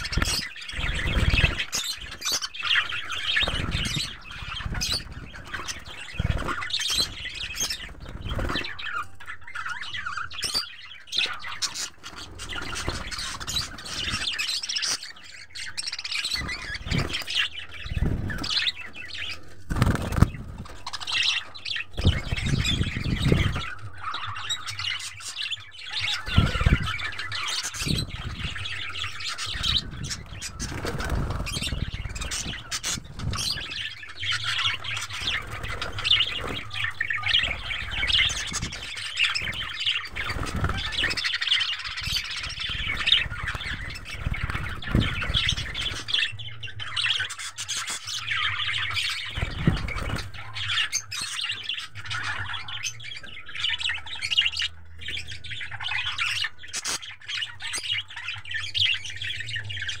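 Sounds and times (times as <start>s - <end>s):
wing flapping: 0.0s - 9.0s, 16.3s - 23.8s, 26.3s - 46.3s
budgerigars chattering and chirping: 0.0s - 60.0s.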